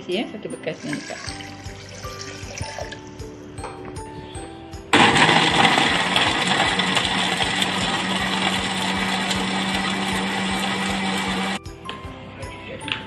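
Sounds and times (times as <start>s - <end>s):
blender grinding: 5.0s - 11.6s.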